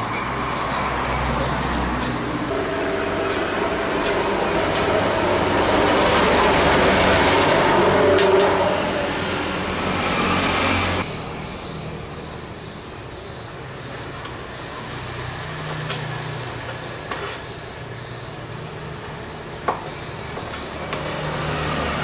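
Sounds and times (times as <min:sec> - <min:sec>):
traffic rumble and hiss: 0:00.0 - 0:22.0
low hum: 0:02.5 - 0:10.3.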